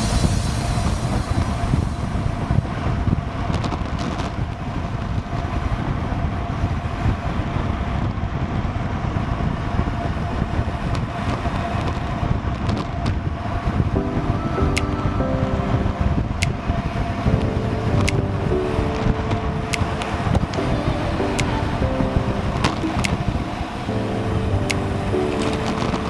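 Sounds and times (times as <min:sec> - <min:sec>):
wind rushing over microphone: 0:00.0 - 0:26.0
sharp clicks: 0:18.0 - 0:18.3, 0:22.6 - 0:23.3, 0:24.6 - 0:26.0.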